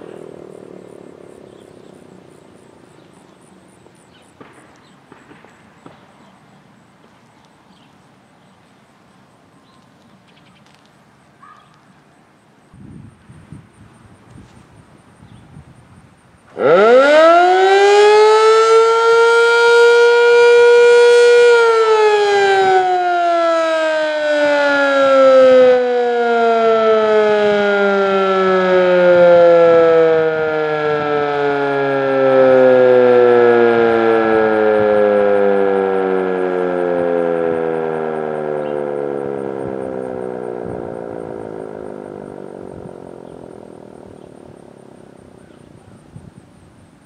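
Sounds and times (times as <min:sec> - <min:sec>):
warning siren wailing: 0:00.0 - 0:06.9, 0:16.4 - 0:47.0.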